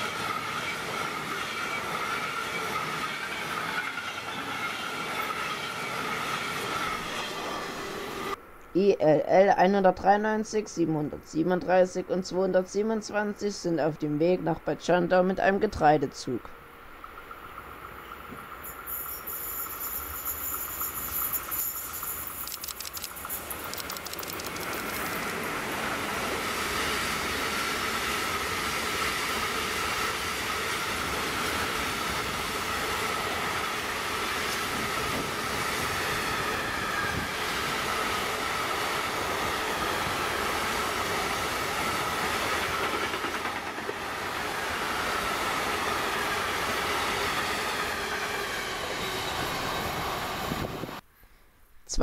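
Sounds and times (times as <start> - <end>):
train wheels rumbling on rails: 16.9 - 51.0.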